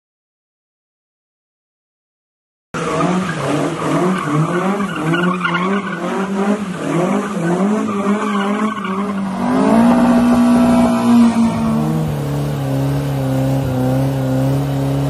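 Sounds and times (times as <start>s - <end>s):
car engine revving: 2.8s - 15.0s
tyres squealing: 3.8s - 12.0s.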